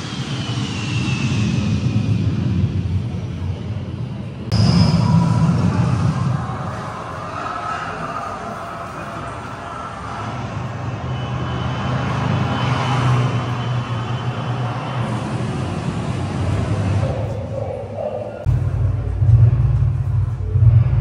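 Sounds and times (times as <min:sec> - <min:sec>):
vehicle engine hum: 0:05.3 - 0:21.0.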